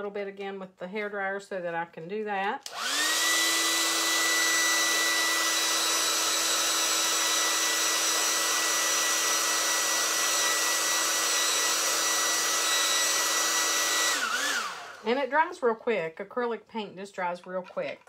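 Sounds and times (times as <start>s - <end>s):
hair dryer blowing: 2.6s - 15.5s.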